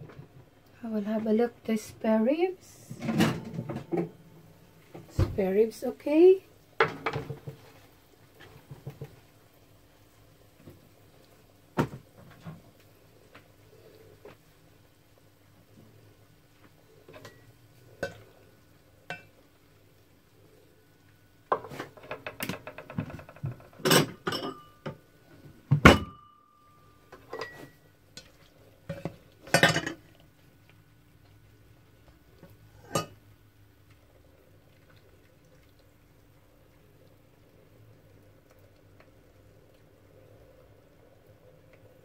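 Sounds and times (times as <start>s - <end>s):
dishes and utensils clinking: 23.1s - 25.0s, 25.8s - 26.4s, 27.2s - 30.0s, 32.8s - 33.2s.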